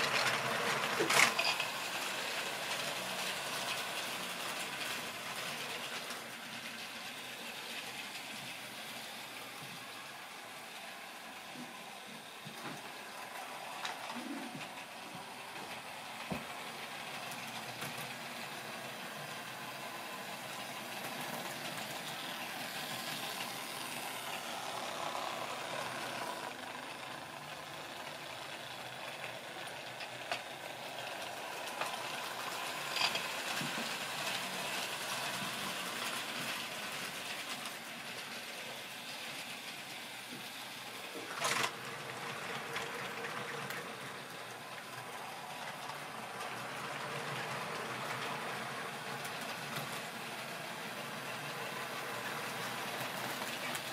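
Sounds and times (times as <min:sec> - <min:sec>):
model train whirring on track: 0:00.0 - 0:53.9.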